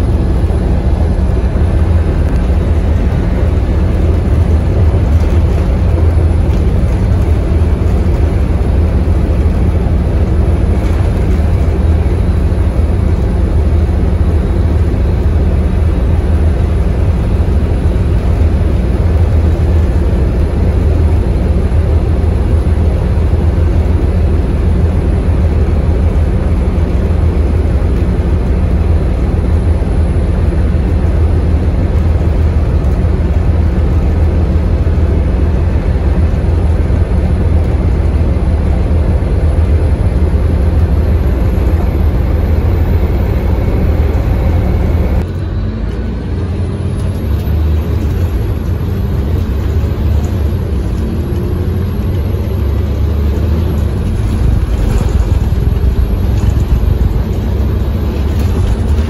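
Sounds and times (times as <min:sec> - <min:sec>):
bus diesel engine drone: 0:00.0 - 0:59.0
road noise: 0:00.0 - 0:59.0.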